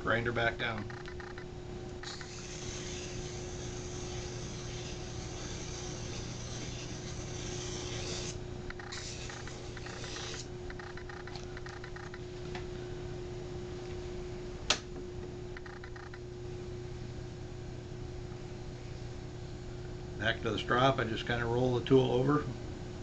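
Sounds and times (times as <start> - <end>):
sharpener motor humming: 0.9 - 12.2
hissing grind of blade: 2.0 - 10.5.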